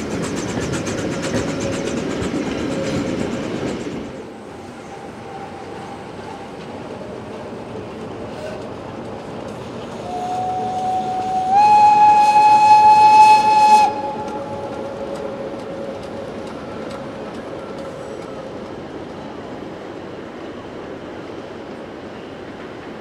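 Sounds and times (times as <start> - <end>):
train running noise: 0.0 - 23.0
steam locomotive whistle: 10.0 - 16.1.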